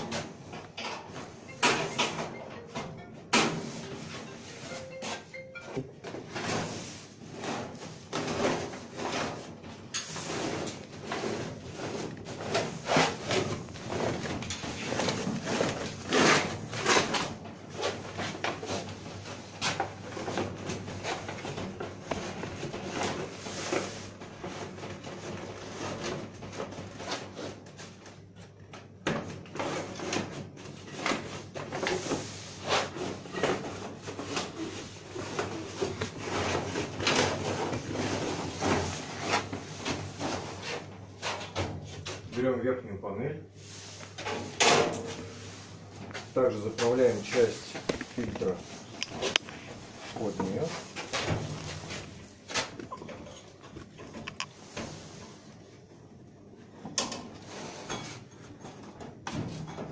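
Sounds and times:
cardboard panels rustling and scraping: 6.1s - 28.1s, 29.2s - 42.5s, 43.6s - 55.6s.

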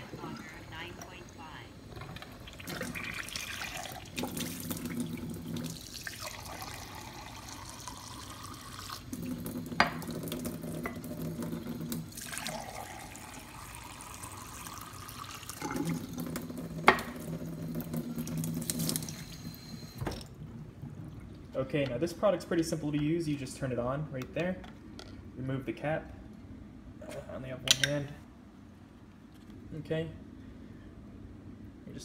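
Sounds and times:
low steady hum: 0.0s - 32.0s
water running into sink: 2.0s - 20.2s.

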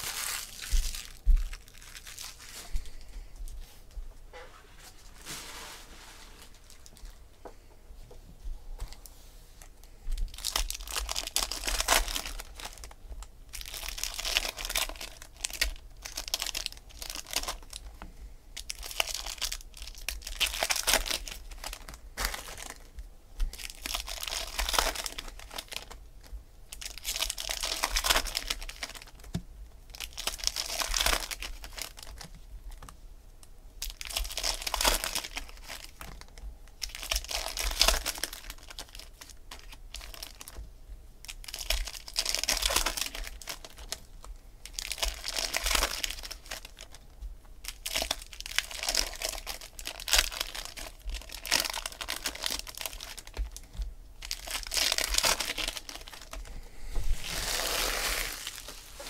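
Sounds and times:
wrappers tearing and crinkling: 0.0s - 2.9s, 10.2s - 17.9s, 18.6s - 22.9s, 23.5s - 26.0s, 26.7s - 29.3s, 29.9s - 32.8s, 33.8s - 40.6s, 41.2s - 47.0s, 47.6s - 59.0s.

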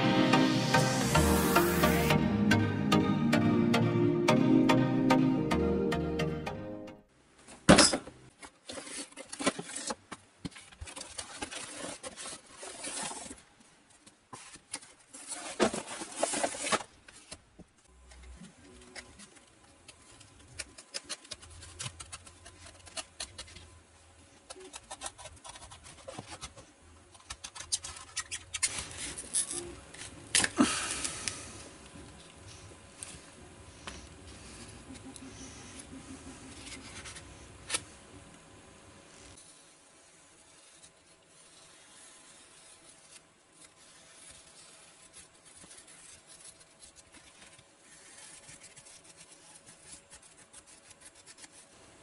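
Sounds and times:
knife cutting foam: 39.3s - 51.7s.

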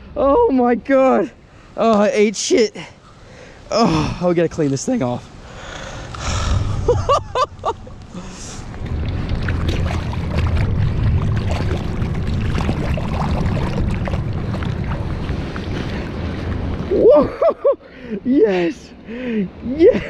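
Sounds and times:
wind rumble on microphone: 5.8s - 17.7s
water sloshing and splashing: 7.7s - 17.0s.

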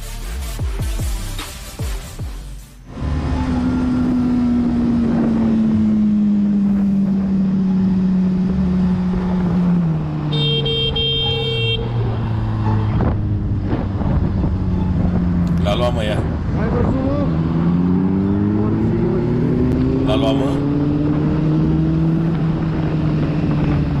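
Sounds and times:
motorcycle engine slowing: 2.9s - 10.3s
horn sounding: 10.3s - 12.1s.

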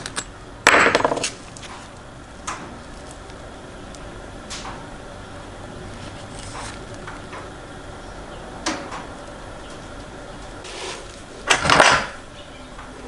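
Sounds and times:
loud clatter: 0.7s - 1.4s.

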